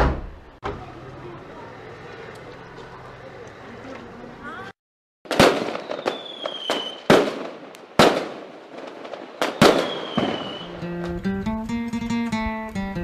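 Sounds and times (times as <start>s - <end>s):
fireworks falling whistles: 5.3s - 10.8s
fireworks bangs: 5.3s - 11.2s
strummed acoustic guitar music: 10.6s - 13.0s.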